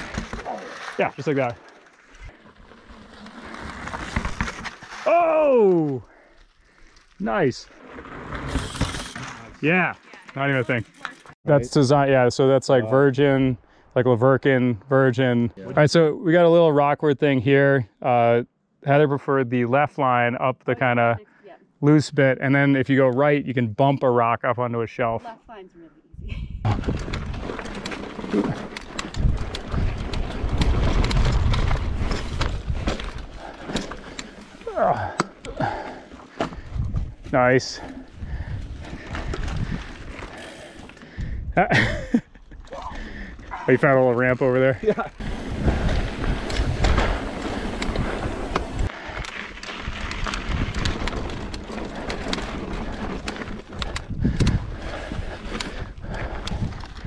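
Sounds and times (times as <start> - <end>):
bike tyres rolling and rattling: 0.0 - 11.4, 26.7 - 57.0
clicks and knocks over rocks: 46.4 - 54.7
wind on microphone: 53.8 - 57.0.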